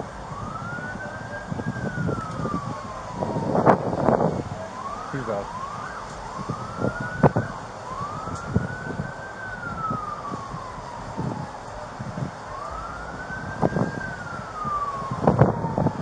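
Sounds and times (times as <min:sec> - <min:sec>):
emergency siren wailing: 0:00.0 - 0:16.0.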